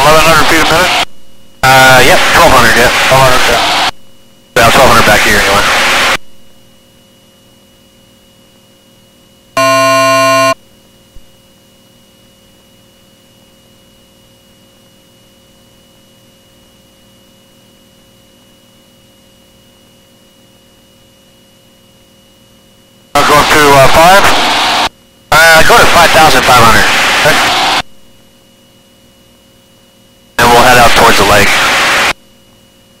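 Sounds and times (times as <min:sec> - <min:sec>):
faint electrical hum: 0:00.0 - 0:33.0
electronic buzzer tone: 0:01.6 - 0:02.1, 0:09.6 - 0:10.6.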